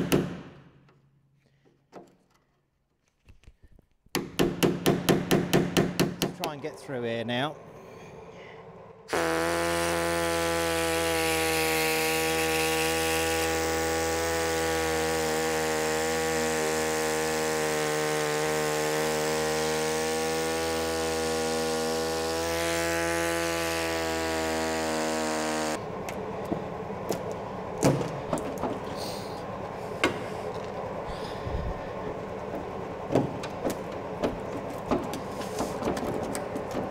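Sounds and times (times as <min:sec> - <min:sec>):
power drill running: 0:09.1 - 0:25.8
metal knocks and scrapes: 0:32.5 - 0:36.9.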